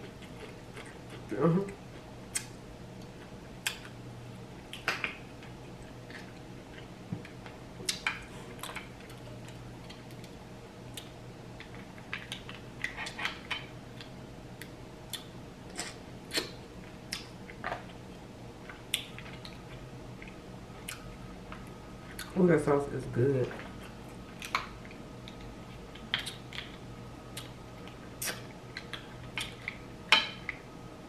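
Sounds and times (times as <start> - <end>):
chewing: 0.0 - 3.9
faint steady hum: 0.0 - 31.0.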